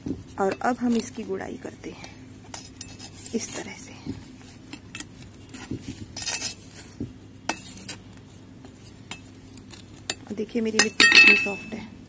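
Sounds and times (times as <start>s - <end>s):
trowel clinking on pot: 10.8s - 11.8s.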